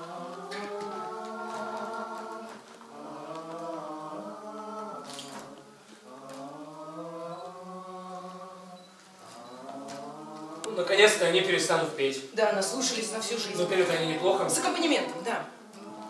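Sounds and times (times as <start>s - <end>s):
voices singing slow song: 0.0s - 12.1s, 12.9s - 16.0s.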